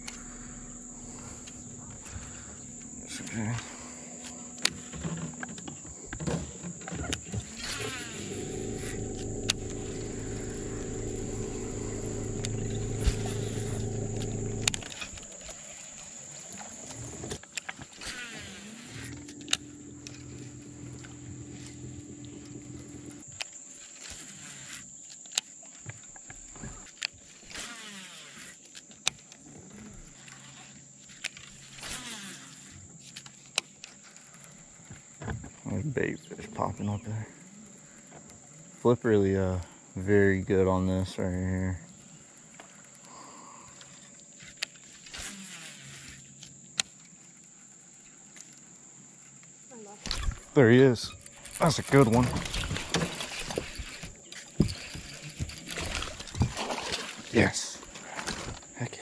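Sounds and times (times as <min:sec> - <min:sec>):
electric motor humming: 0:00.0 - 0:06.6, 0:07.2 - 0:17.3, 0:17.9 - 0:23.3
high-pitched insect drone: 0:00.0 - 0:25.2.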